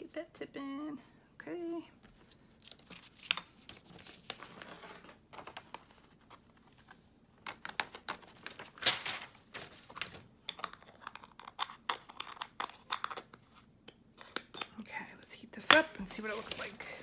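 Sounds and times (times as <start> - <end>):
paper rustling: 2.1 - 10.3, 16.0 - 17.0.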